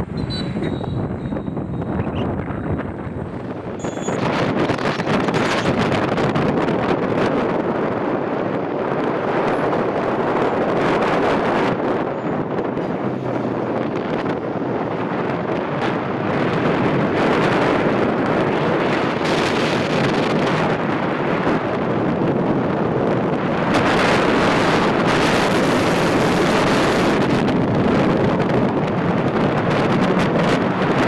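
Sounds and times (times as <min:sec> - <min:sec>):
motorbike running and road noise: 0:00.0 - 0:31.0
wind buffeting microphone: 0:00.0 - 0:31.0.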